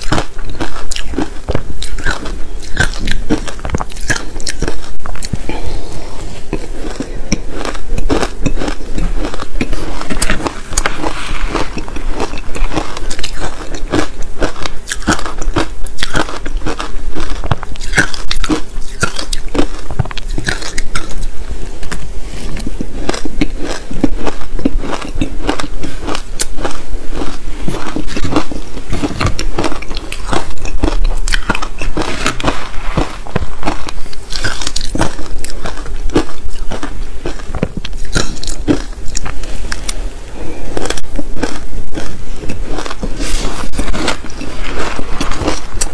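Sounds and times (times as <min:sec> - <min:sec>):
chewing crunchy ice: 0:00.0 - 0:45.9.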